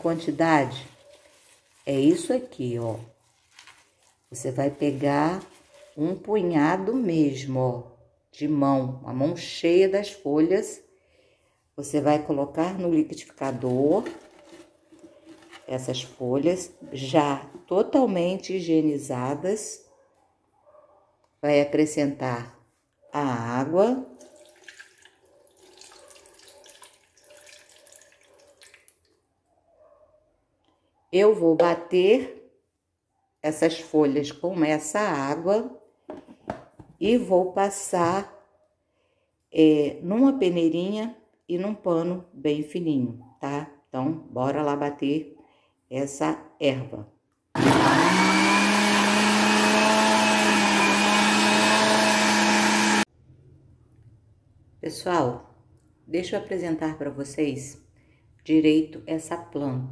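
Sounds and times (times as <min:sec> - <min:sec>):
water trickling into blender jar: 0:24.2 - 0:29.1
blender motor hum: 0:47.6 - 0:53.1.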